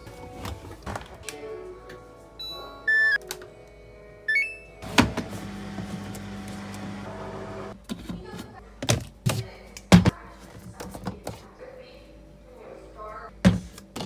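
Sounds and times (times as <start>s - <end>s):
washing machine beeps: 2.4s - 3.2s, 4.3s - 4.8s
detergent drawer clunk: 4.8s - 7.0s
washing machine low hum: 4.8s - 7.8s.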